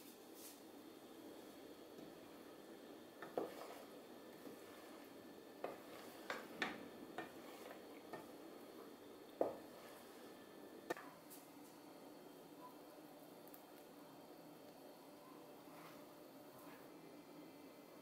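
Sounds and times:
faint steady hiss: 0.0 - 18.0
wooden spoon stirring thick soup: 1.2 - 11.1.

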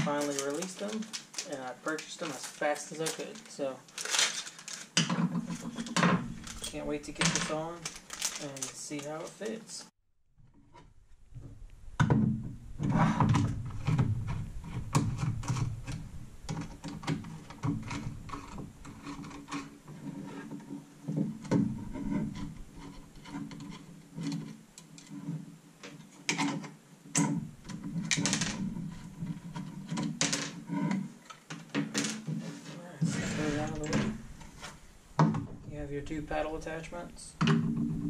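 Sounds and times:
plastic parts clicking: 0.0 - 9.6, 25.8 - 32.4.

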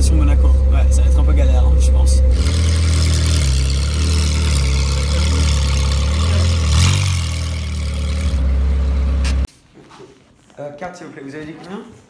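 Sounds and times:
car engine idling: 0.0 - 9.5.

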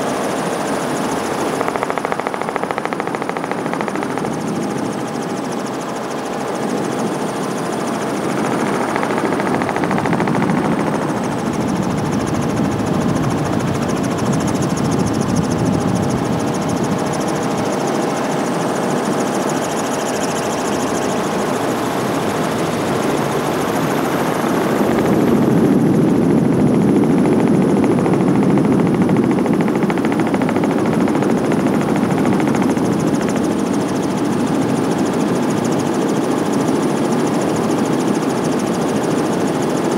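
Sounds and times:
helicopter rotor and engine roar: 0.0 - 39.9.

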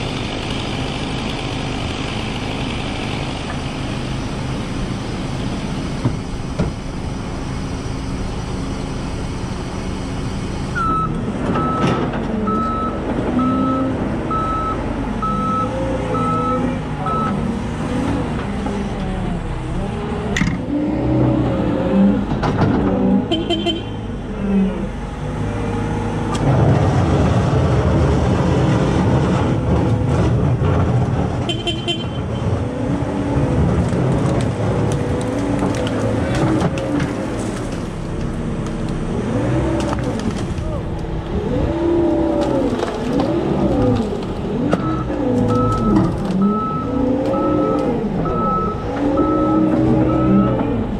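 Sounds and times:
vehicle engine running: 0.0 - 15.5
reversing alarm beeps: 44.8 - 50.7.

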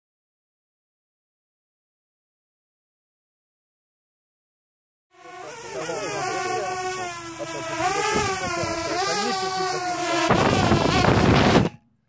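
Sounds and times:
drone propellers whining: 5.2 - 11.8.

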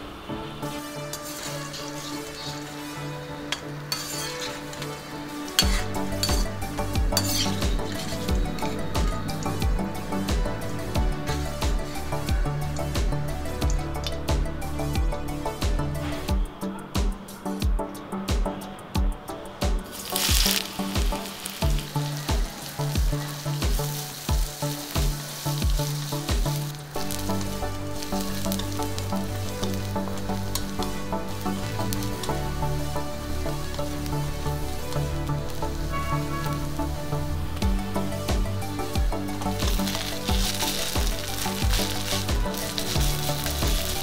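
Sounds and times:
background music with beat: 0.0 - 44.0
food sizzling in hot oil: 0.6 - 14.2, 19.8 - 44.0
skimmer scraping a pan: 0.7 - 12.9, 19.8 - 36.9, 38.8 - 44.0
wooden spatula stirring: 1.1 - 9.8, 19.8 - 36.1, 39.2 - 44.0.

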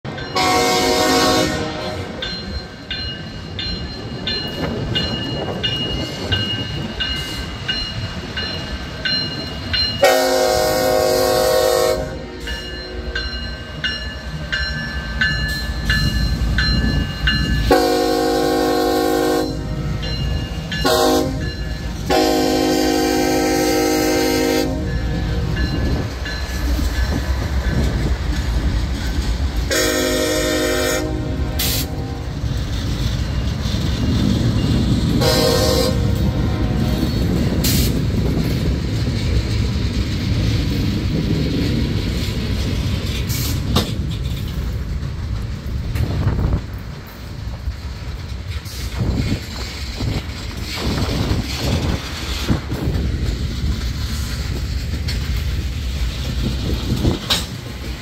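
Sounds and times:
locomotive engines and wheels rumbling: 0.0 - 58.0
locomotive horn blasts: 0.3 - 2.2, 10.0 - 12.5, 17.7 - 20.0, 20.8 - 25.4, 29.7 - 32.3, 35.2 - 36.9
bell ringing steadily: 2.2 - 10.0, 12.4 - 17.7, 19.4 - 22.0, 24.9 - 27.8.

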